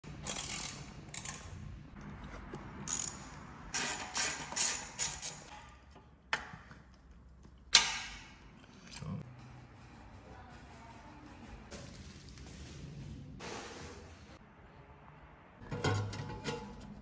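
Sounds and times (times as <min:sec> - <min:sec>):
ratchet wrench clicking: 0:00.2 - 0:01.6, 0:02.8 - 0:05.5.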